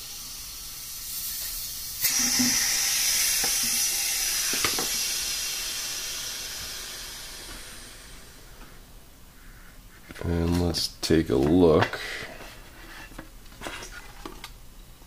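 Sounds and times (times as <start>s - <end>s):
air hissing into vacuum chamber: 0.0s - 9.6s.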